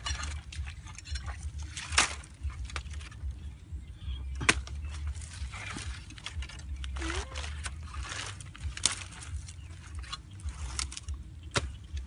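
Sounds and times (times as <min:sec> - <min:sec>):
stick scraping in mud: 0:00.0 - 0:03.4, 0:04.3 - 0:12.0
low rumble: 0:00.0 - 0:12.0.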